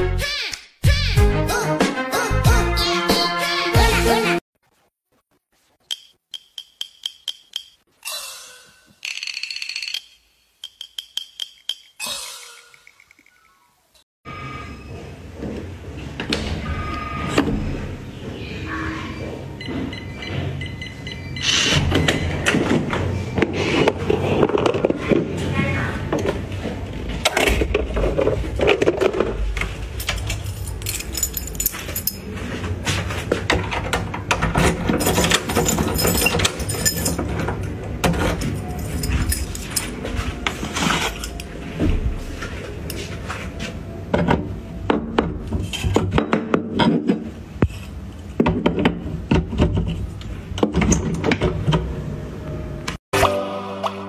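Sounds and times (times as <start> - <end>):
metal carabiners clinking: 5.9 - 7.8, 9.0 - 12.0, 29.9 - 32.3, 35.0 - 40.1.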